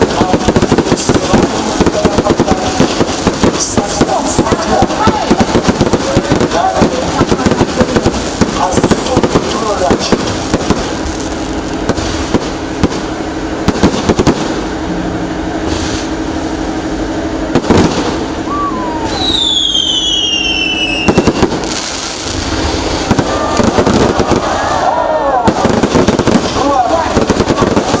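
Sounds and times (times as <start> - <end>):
fireworks bangs: 0.0 - 28.0
fireworks crackling: 0.0 - 28.0
falling whistle: 18.4 - 21.4.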